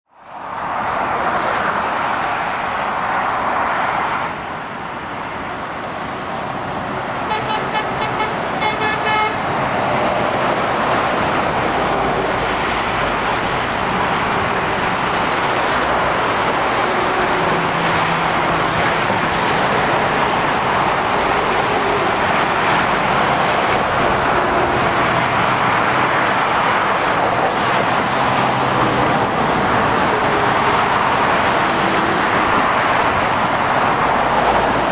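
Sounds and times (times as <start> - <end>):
roar of traffic: 0.1 - 34.9
vehicle horn: 7.2 - 9.4.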